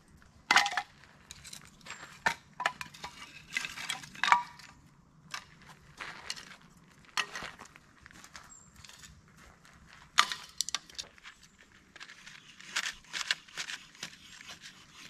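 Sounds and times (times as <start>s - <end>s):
camp gear clinking and knocking: 0.4s - 7.8s, 10.1s - 14.1s.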